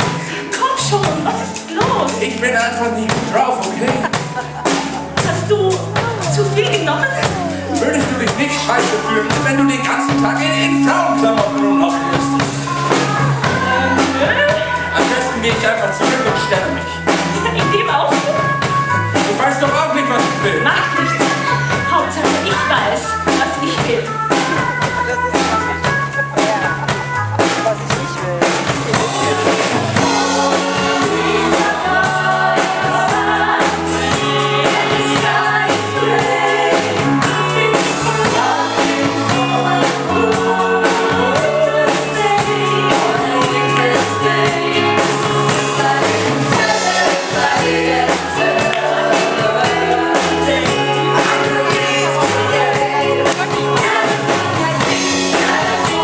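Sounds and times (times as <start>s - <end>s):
song with drum beat and singing: 0.0s - 56.0s.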